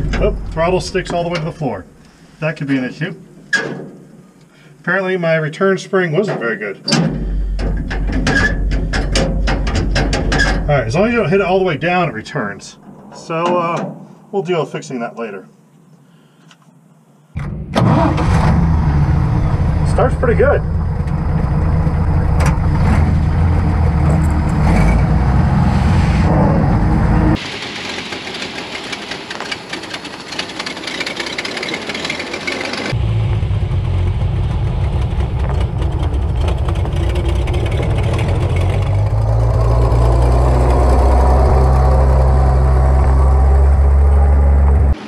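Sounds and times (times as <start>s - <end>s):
truck engine running: 0.0s - 2.0s, 18.6s - 45.0s
hiss: 27.4s - 31.9s.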